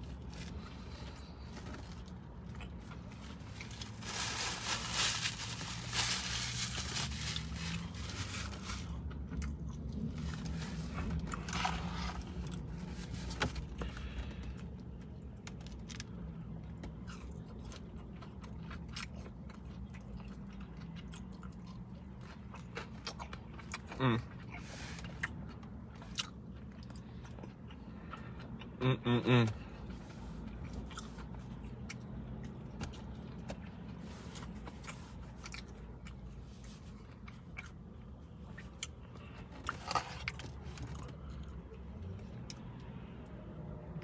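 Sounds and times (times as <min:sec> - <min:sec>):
chewing and crunching food: 0:00.0 - 0:43.4
paper crinkling: 0:03.3 - 0:09.0.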